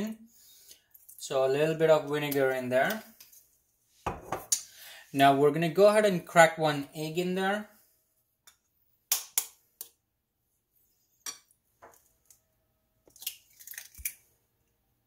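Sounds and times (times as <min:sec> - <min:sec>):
eggshell crackling: 0:13.0 - 0:14.2.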